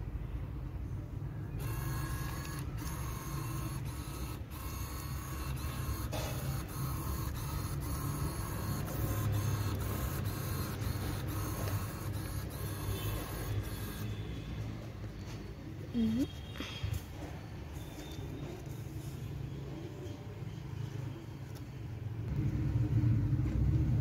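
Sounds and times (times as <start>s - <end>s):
small motors whirring: 1.6s - 14.6s.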